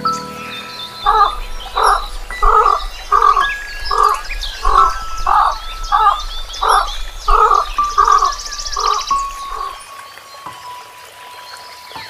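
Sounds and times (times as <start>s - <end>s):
birds chirping and whistling: 0.8s - 9.9s
animal giving short calls: 1.0s - 9.8s.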